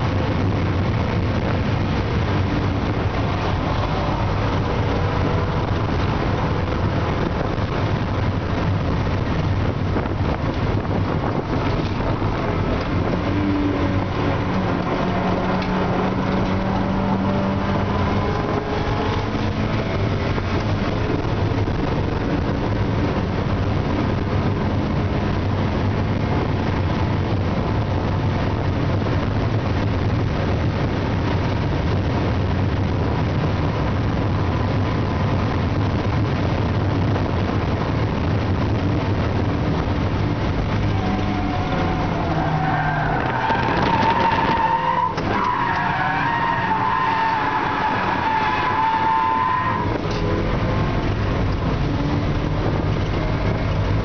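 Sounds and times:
car engine running under load: 0:00.0 - 0:54.0
wind noise on microphone: 0:00.0 - 0:54.0.

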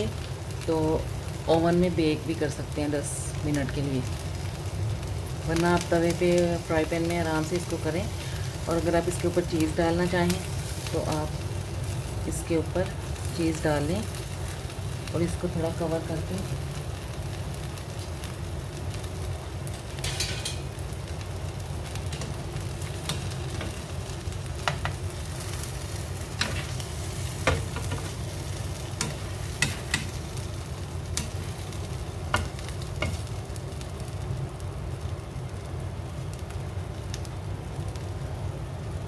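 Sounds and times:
wraps sizzling in frying pan: 0:00.0 - 0:39.0
spatula tapping and scraping pan: 0:24.6 - 0:25.0, 0:27.4 - 0:28.2, 0:29.0 - 0:30.2, 0:32.3 - 0:33.2.

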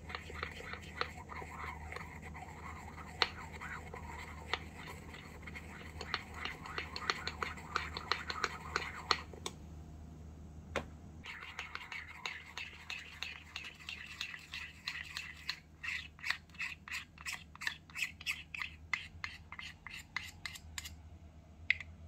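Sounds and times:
utensil scraping metal bowl: 0:00.0 - 0:09.2, 0:11.2 - 0:21.0
utensil clicking in metal bowl: 0:05.7 - 0:09.2.

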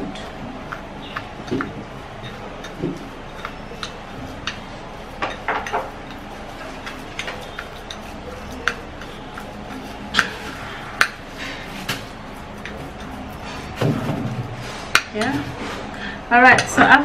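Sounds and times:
metal spoon clinking on glass bowl: 0:02.2 - 0:10.4.

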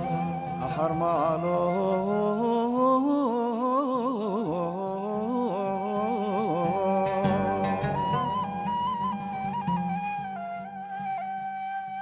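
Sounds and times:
person singing melismatic chant: 0:00.6 - 0:08.6.

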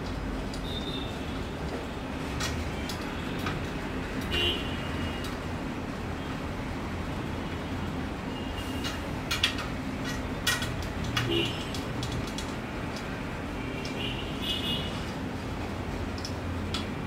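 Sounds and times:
bicycle spokes clicking and pinging: 0:08.8 - 0:13.1.

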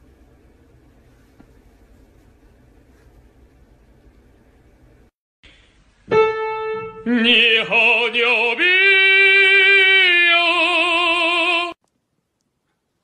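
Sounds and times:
operatic singing with vibrato: 0:07.0 - 0:11.8.

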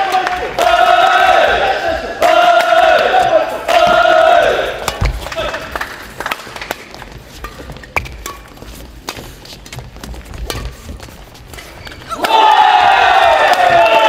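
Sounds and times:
crowd cheering and shouting: 0:00.0 - 0:05.5, 0:12.1 - 0:14.0
footsteps on court floor: 0:03.2 - 0:05.6, 0:06.5 - 0:12.2
racket hitting shuttlecock: 0:04.8 - 0:05.2, 0:07.3 - 0:09.8, 0:10.4 - 0:11.2.

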